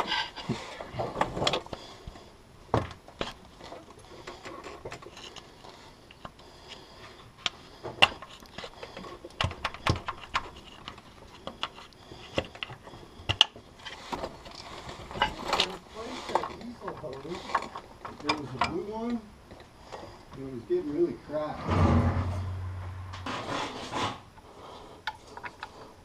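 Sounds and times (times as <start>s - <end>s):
hand tools clicking and tapping metal: 7.4s - 19.7s.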